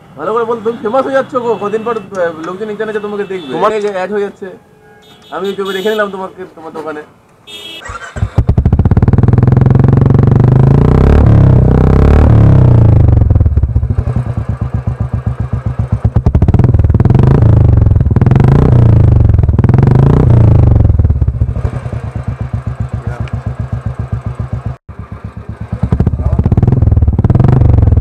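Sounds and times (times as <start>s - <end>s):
motorcycle engine revving and idling: 7.9s - 28.0s.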